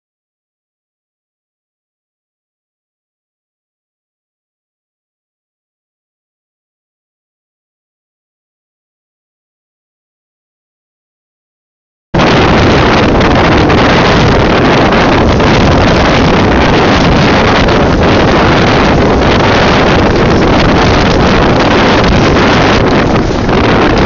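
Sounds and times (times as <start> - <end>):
small boat running on water: 12.2 - 24.0
wind buffeting microphone: 12.2 - 24.0.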